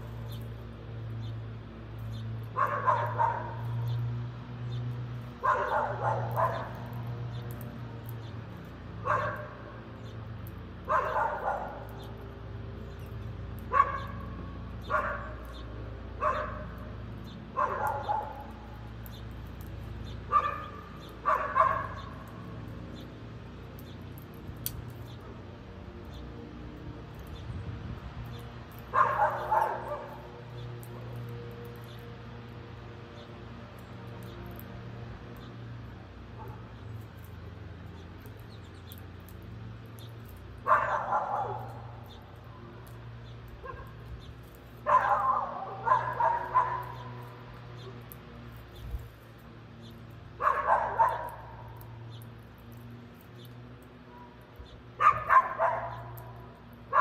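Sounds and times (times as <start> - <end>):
dog barking: 2.6 - 3.6, 5.4 - 6.8, 9.0 - 9.6, 10.8 - 11.9, 13.7 - 14.3, 14.9 - 15.5, 16.2 - 16.8, 17.6 - 18.6, 20.3 - 22.1, 28.9 - 30.2, 40.6 - 42.0, 43.6 - 44.0, 44.8 - 47.2, 50.4 - 51.7, 55.0 - 56.2.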